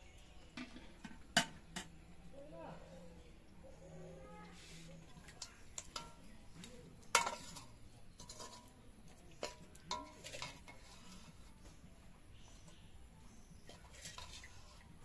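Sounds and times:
steel ladle scraping and clinking: 0:04.5 - 0:11.7, 0:13.5 - 0:15.0.

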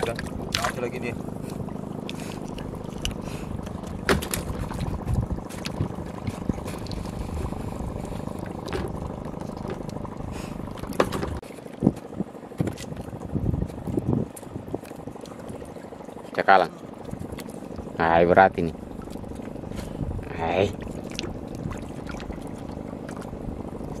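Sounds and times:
water lapping against canoe: 0:00.0 - 0:24.0
wind on microphone: 0:03.6 - 0:09.2, 0:11.8 - 0:15.7, 0:19.8 - 0:20.4
knocks on boat: 0:03.9 - 0:06.5, 0:08.6 - 0:09.0, 0:10.9 - 0:11.4.

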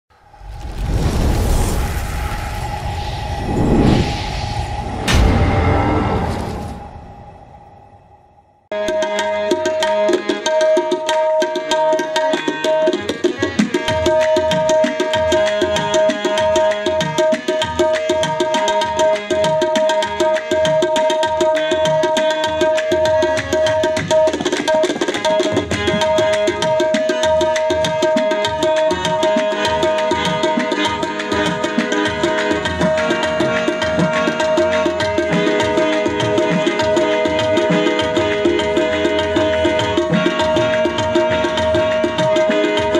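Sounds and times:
harmonium drone and melody: 0:08.7 - 0:42.9
fast hand-drum rhythm: 0:09.6 - 0:42.9.

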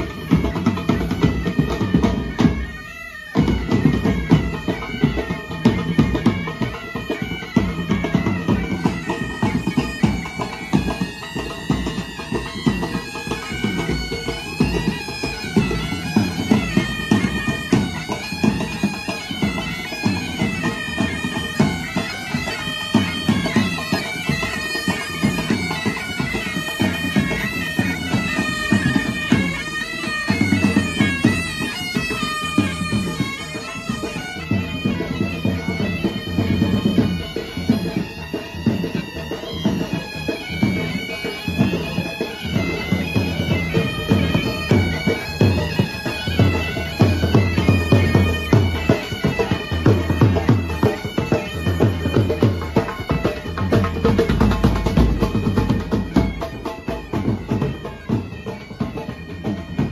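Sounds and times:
pipe band bagpipes playing: 0:00.0 - 0:59.9.

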